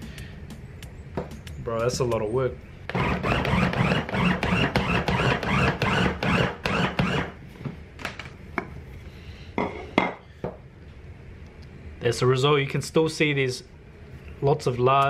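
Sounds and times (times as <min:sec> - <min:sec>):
mini chopper motor pulsing: 0:02.9 - 0:07.3.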